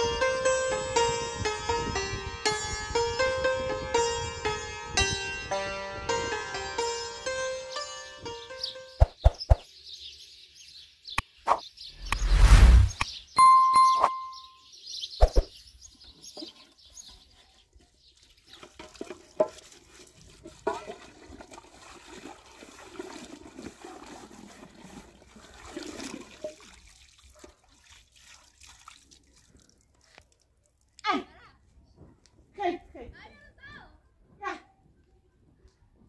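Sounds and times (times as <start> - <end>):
water splashing into metal pot: 25.6 - 30.0.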